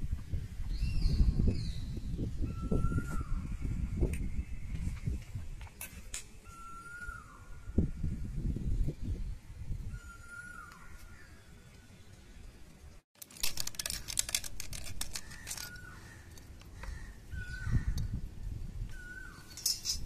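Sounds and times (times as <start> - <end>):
plastic fittings clicking and rattling: 13.2 - 16.7.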